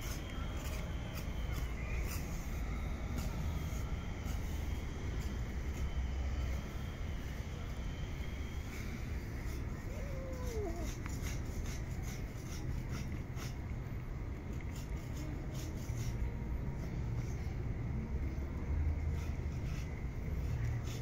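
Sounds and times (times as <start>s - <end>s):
falling whine: 0.0s - 10.9s.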